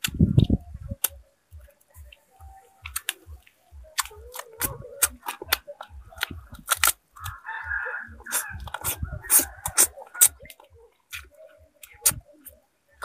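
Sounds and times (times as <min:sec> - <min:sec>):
crackles of burnt skin breaking: 0:02.9 - 0:07.5
person chewing: 0:02.9 - 0:07.5, 0:08.2 - 0:12.2.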